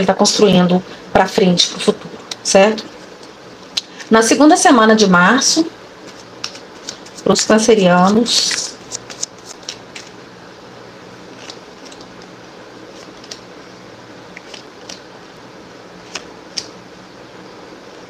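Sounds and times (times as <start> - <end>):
low room hum: 0.0 - 18.0.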